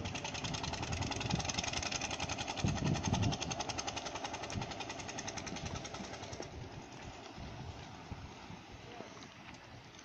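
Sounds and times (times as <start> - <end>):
boat engine knocking: 0.0 - 7.3.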